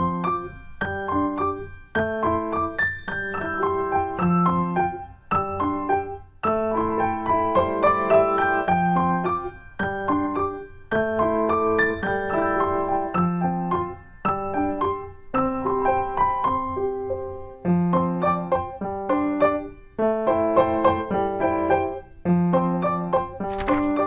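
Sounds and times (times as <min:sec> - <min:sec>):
gentle solo piano: 0:00.0 - 0:24.0.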